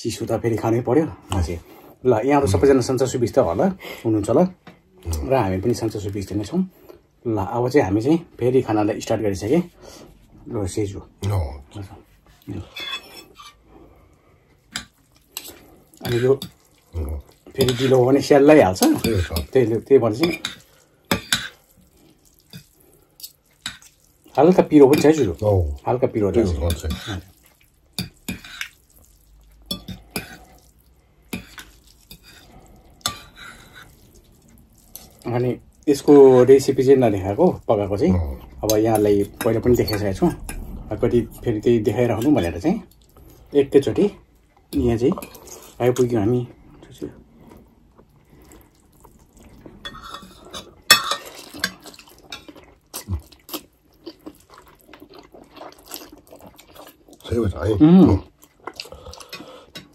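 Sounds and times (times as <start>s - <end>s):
forks clinking on ceramic plates: 50.9s - 51.8s.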